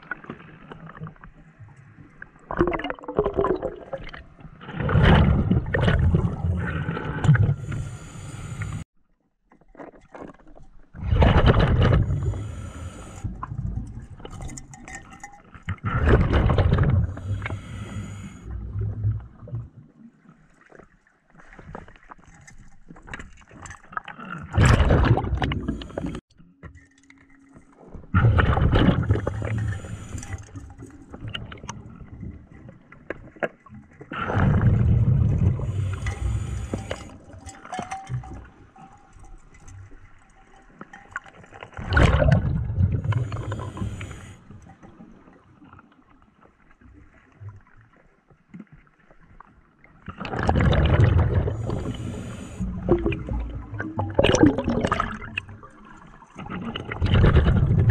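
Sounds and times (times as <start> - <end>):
exhaled bubbles bursting: 2.5 - 7.8, 15.8 - 17.7, 24.2 - 26.2, 28.1 - 32.3, 34.1 - 38.6, 41.7 - 44.8, 50.2 - 57.9
regulator hiss on inhale: 7.6 - 8.8, 12.1 - 13.3, 17.1 - 18.5, 29.3 - 30.6, 35.7 - 37.2, 43.2 - 44.5, 51.6 - 52.8.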